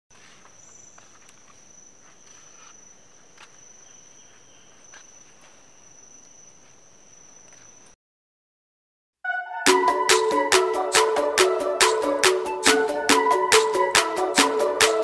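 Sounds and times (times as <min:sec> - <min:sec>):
insects droning: 0:00.2 - 0:08.0.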